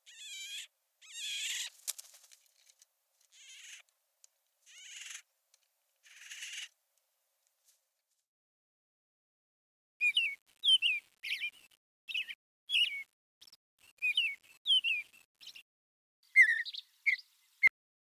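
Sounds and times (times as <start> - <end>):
bear cub calling: 0.0 - 1.7, 3.3 - 3.9, 4.7 - 5.2.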